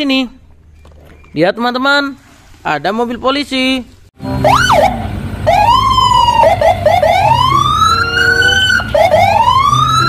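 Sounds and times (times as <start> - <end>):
police siren wailing: 4.3 - 10.0.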